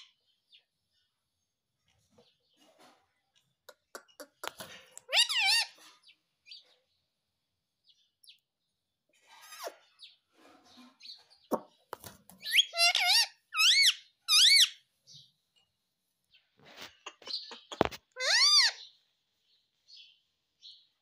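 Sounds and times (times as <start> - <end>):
parakeet shrill calls: 5.1 - 5.8, 12.4 - 14.8, 18.1 - 18.9.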